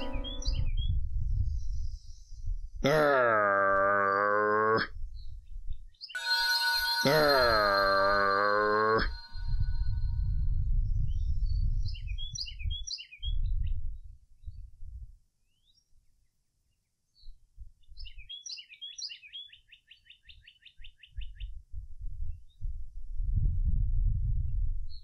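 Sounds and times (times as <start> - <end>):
birds chirping: 0.0 - 0.9.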